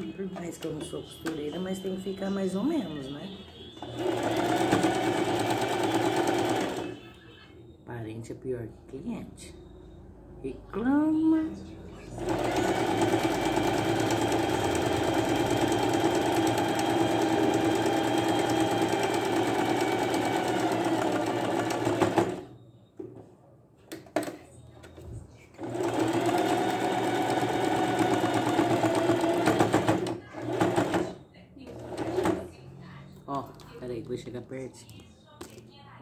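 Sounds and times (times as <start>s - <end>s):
sewing machine stitching: 3.8s - 7.0s, 12.2s - 22.5s, 25.6s - 32.5s.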